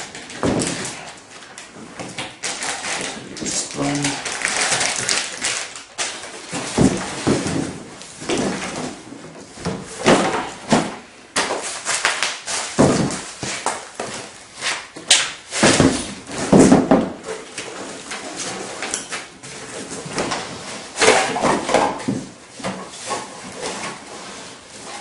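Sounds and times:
packaging rustling: 0.1s - 7.6s.

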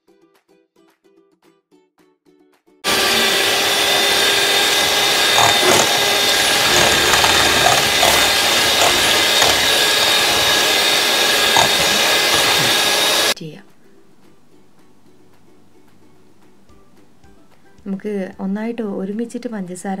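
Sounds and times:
electric hand mixer whisking: 2.8s - 13.4s.

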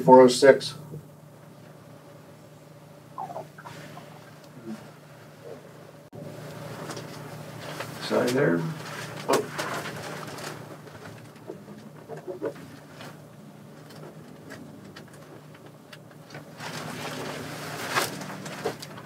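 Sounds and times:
low room hum: 0.0s - 19.0s
paper rustling: 6.8s - 19.0s.

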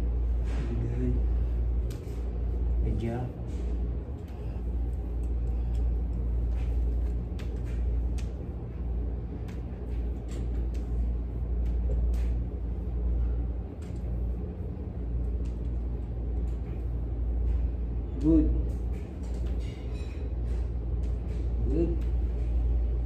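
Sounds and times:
slow footsteps: 3.4s - 19.6s.

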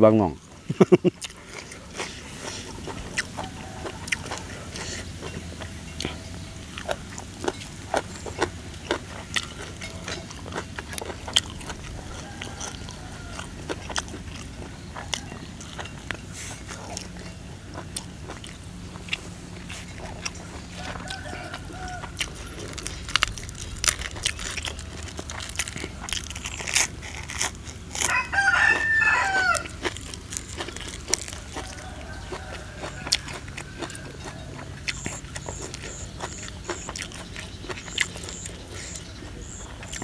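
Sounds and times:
close chewing: 0.1s - 40.0s
rooster crowing: 2.4s - 5.0s, 11.3s - 15.9s, 20.1s - 23.0s, 27.9s - 37.1s.

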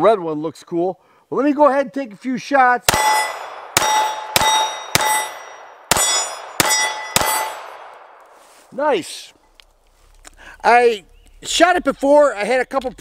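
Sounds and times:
steel target plate ringing: 2.9s - 7.8s
pistol shots: 2.9s - 8.2s.

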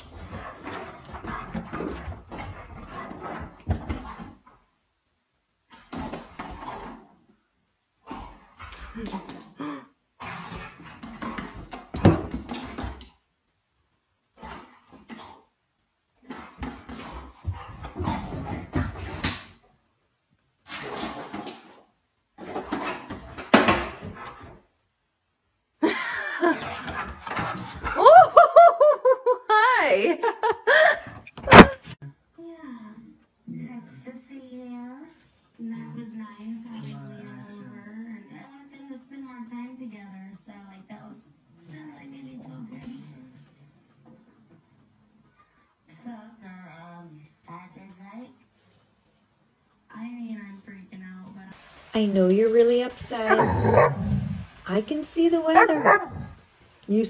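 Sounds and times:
dog paws thumping and scrabbling: 0.0s - 4.6s, 10.5s - 13.2s, 16.3s - 19.6s, 26.6s - 28.0s, 53.3s - 56.5s
small dog noises: 53.2s - 54.6s, 55.6s - 56.4s.

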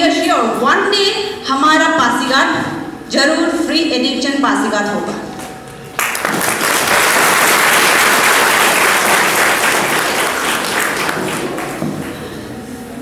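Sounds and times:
audience applauding: 6.0s - 12.2s.

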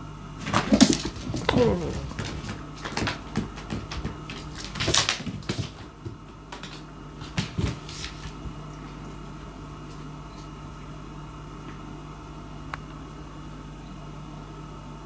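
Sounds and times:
paws tapping on wooden floor: 0.4s - 8.9s.

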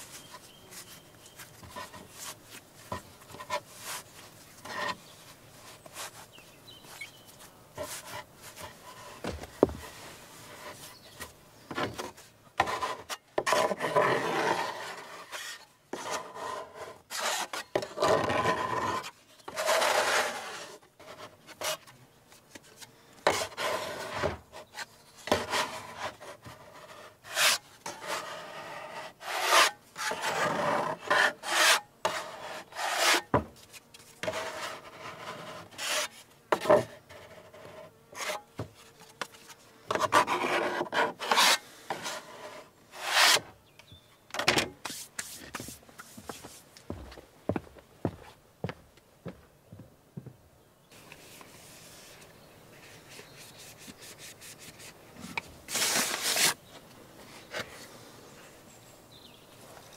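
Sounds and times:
dough scraper scraping wooden board: 12.6s - 21.8s, 23.3s - 33.4s, 34.2s - 38.8s, 39.9s - 43.5s.

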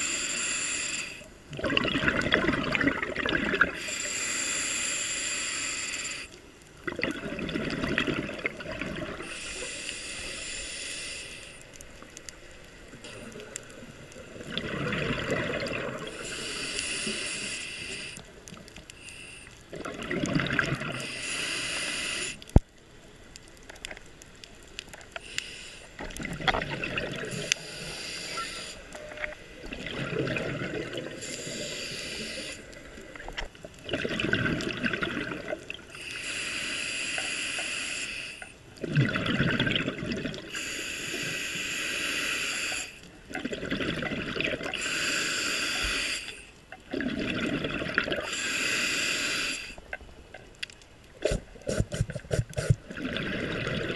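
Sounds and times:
regulator hissing inhale: 0.0s - 1.4s, 3.7s - 6.4s, 9.2s - 13.4s, 16.0s - 19.7s, 21.0s - 22.6s, 25.2s - 26.1s, 27.3s - 29.1s, 31.1s - 32.9s, 35.9s - 38.6s, 40.5s - 43.2s, 44.8s - 46.6s, 48.2s - 49.9s
bubbling gurgle of exhaled air: 1.5s - 3.9s, 6.1s - 9.5s, 12.8s - 18.8s, 19.7s - 21.3s, 26.0s - 36.0s, 38.7s - 40.6s, 43.2s - 45.1s, 46.8s - 48.7s, 51.2s - 53.9s.

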